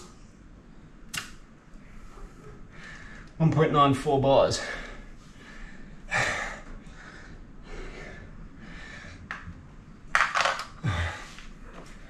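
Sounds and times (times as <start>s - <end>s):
man breathing hard: 1.9s - 3.4s, 4.6s - 9.5s, 10.8s - 12.0s.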